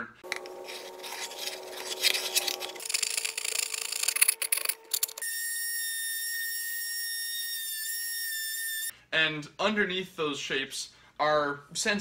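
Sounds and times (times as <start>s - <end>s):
scratching on wooden board: 0.3s - 5.2s.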